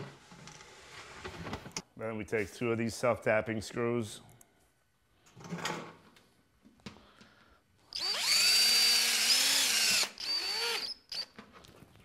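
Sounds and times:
power drill whining: 7.9s - 11.4s.

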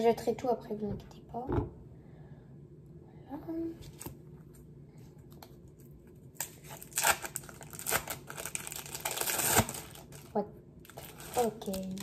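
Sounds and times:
plastic wrapper crinkling: 5.7s - 12.0s.

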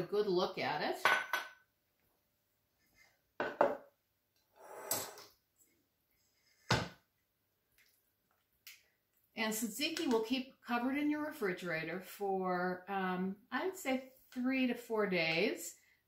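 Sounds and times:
glass bowl knocking on wood: 3.4s - 3.8s.

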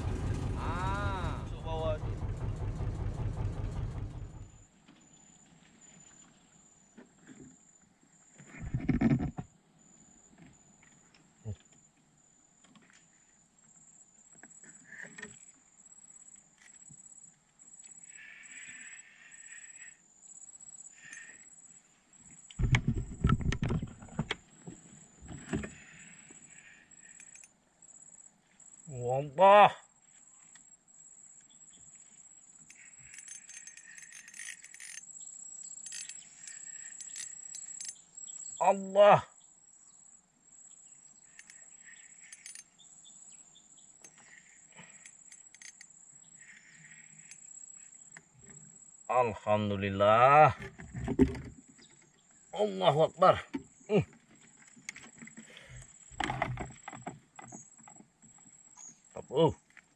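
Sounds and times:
high insect drone: 14.3s - 23.6s, 24.5s - 29.3s, 30.0s - 38.9s, 39.7s - 49.7s
knocks in wooden boat: 22.6s - 24.4s.

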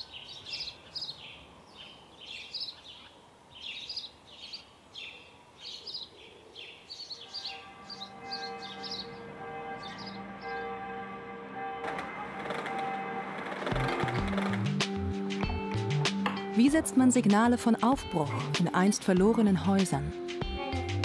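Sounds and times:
songbirds chirping: 0.0s - 11.8s
music of long held notes: 7.2s - 17.0s.

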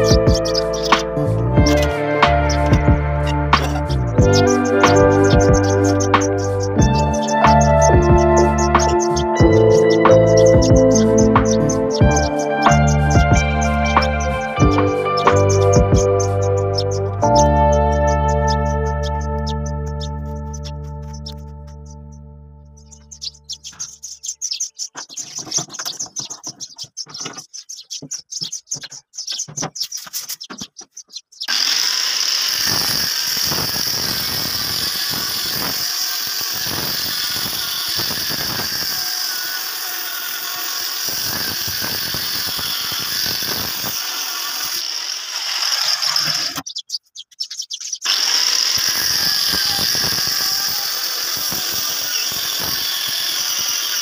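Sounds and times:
angle grinder cutting steel pipe: 0.0s - 17.3s, 31.4s - 46.7s, 48.0s - 54.0s.

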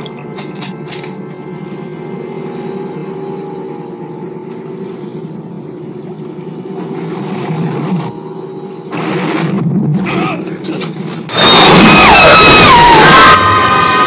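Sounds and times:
boat engine droning: 0.0s - 14.0s.

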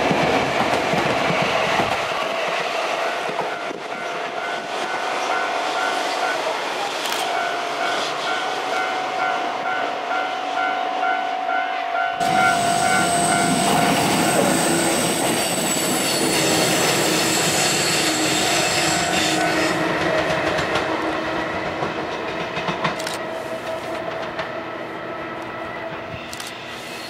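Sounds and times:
train wheels clattering on rails: 0.0s - 8.8s, 12.2s - 24.6s.

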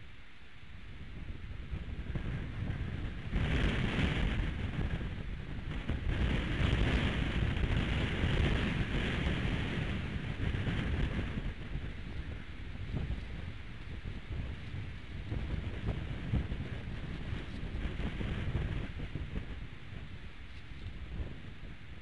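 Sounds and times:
wind buffeting microphone: 0.8s - 22.0s.

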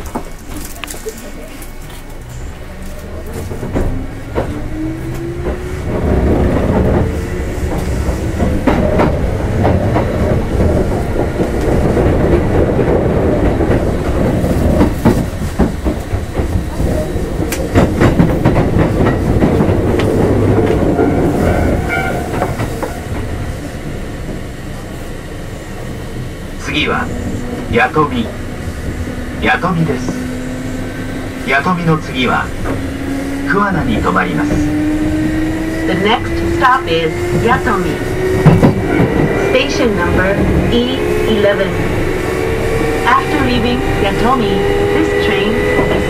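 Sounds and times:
wheels clacking over rail joints: 0.0s - 24.6s
train running noise: 0.0s - 46.0s.

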